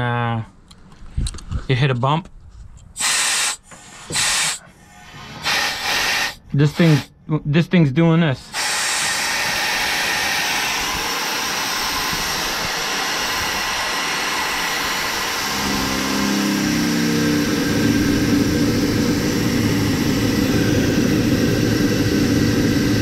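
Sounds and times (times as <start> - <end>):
compressed air hissing: 3.0 - 7.2, 8.4 - 23.0
low engine hum: 14.6 - 23.0.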